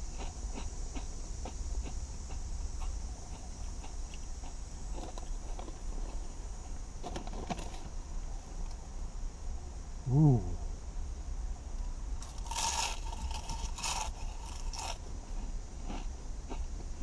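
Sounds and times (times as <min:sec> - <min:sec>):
low hum: 0:08.0 - 0:16.9
chip bag crinkling: 0:12.2 - 0:15.0
potato chips being chewed: 0:12.2 - 0:16.7.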